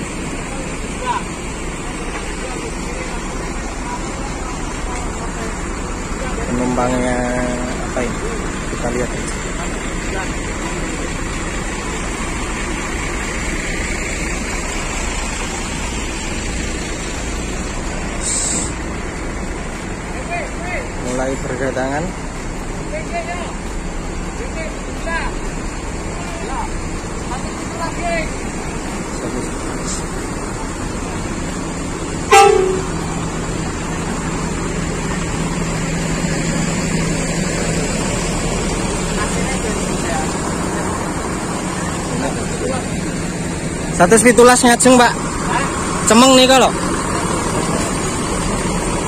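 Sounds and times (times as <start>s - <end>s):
diesel bus engines idling: 0.0s - 49.0s
short sharp hiss: 18.2s - 18.8s
bus horn toot: 32.2s - 33.2s.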